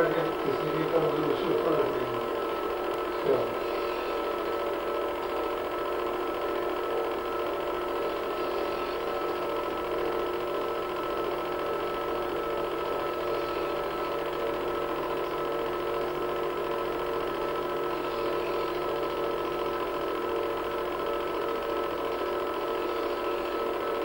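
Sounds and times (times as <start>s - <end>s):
movie projector whirring: 0.0s - 24.0s.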